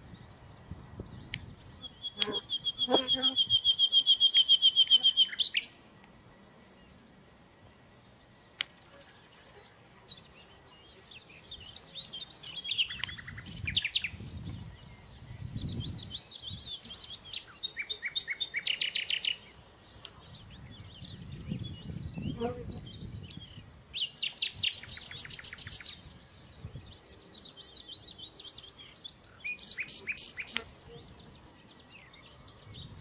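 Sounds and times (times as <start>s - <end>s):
songbirds chirping and singing: 0.0s - 33.0s.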